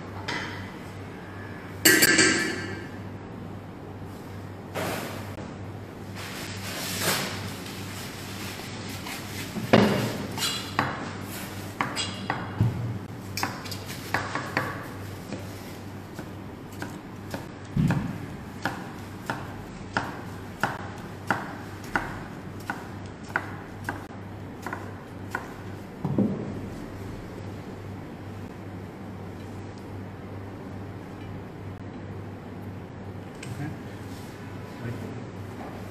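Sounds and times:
knife chopping on cutting board: 16.2 - 26.5.

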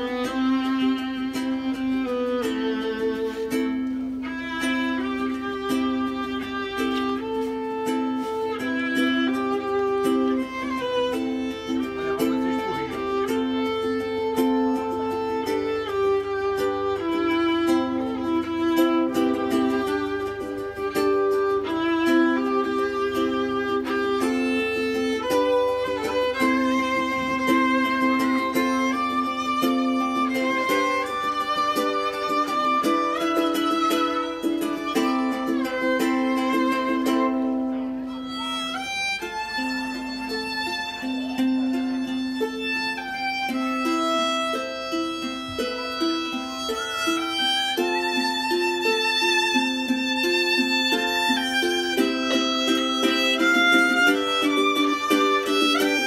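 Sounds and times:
plucked guitar: 0.0 - 56.0
ukulele strummed chords: 0.0 - 56.0
violin bowed melody: 0.0 - 56.0.

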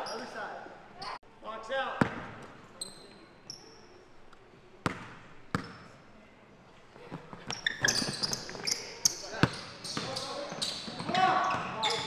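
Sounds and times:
sneaker squeaks and scuffs: 0.0 - 0.4, 2.8 - 3.9, 7.0 - 12.0.

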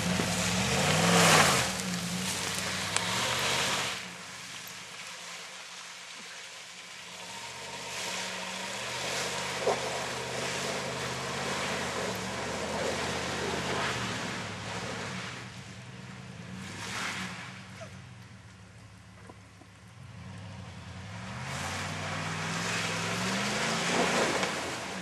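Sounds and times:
truck engine working hard: 0.0 - 4.1, 7.1 - 15.4
mud and water splashing: 0.0 - 17.7, 21.2 - 25.0.

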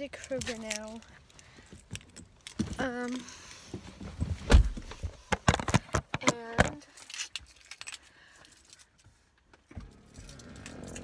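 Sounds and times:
car keys jangling: 0.0 - 3.3, 6.8 - 9.1, 9.9 - 11.0.

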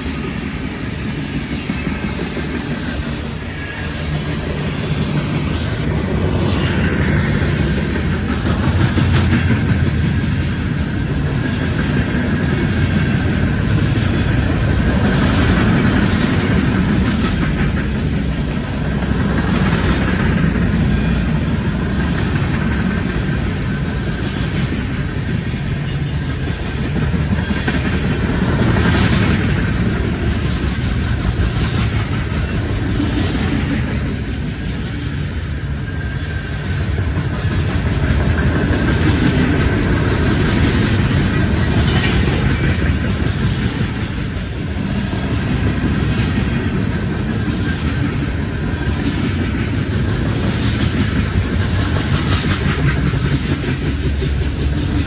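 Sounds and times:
freight train wheels rumbling: 0.0 - 55.0.

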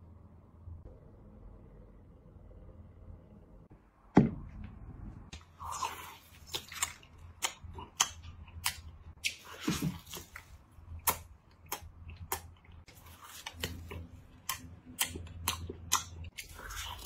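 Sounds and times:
loud thump: 4.1 - 4.6
person chewing crunchy food: 5.4 - 17.0.

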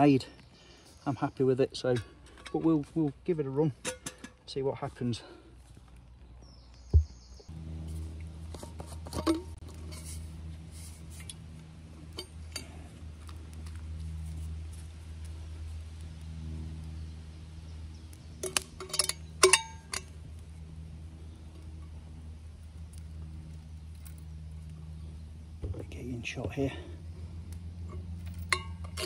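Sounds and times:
steady low drone: 7.4 - 29.0
metal flask and lid clinking: 18.4 - 20.1, 28.3 - 29.0.

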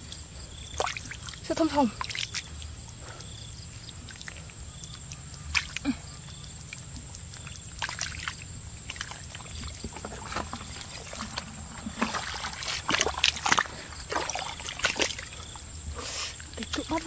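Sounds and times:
shallow water sloshing: 0.6 - 2.8, 3.7 - 17.0
wet mud squelching: 0.6 - 17.0
water splashes and slaps: 0.7 - 2.7, 4.0 - 6.0, 6.7 - 15.4.

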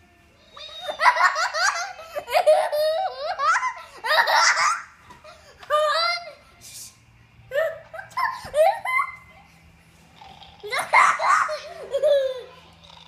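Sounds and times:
boy laughing high-pitched: 0.6 - 5.0, 7.5 - 9.3, 10.7 - 12.6.

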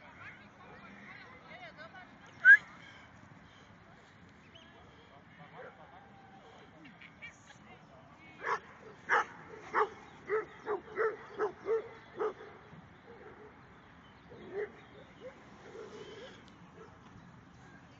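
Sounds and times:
dog barking: 8.4 - 12.6.

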